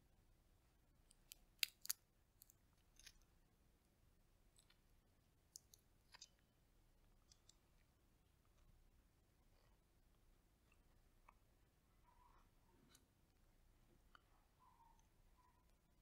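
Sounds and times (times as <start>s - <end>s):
chestnut shells cracking: 1.1s - 3.2s.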